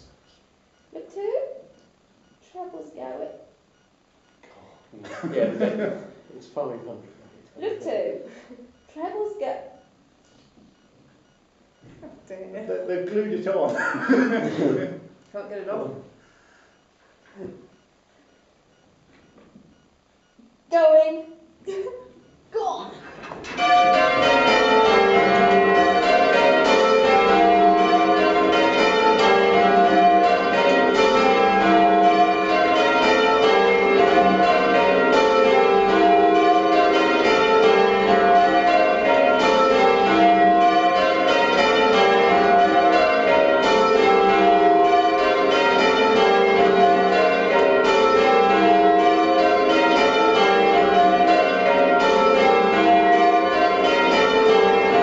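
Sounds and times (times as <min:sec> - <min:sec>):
church bells ringing rounds: 0:23.4 - 0:55.0.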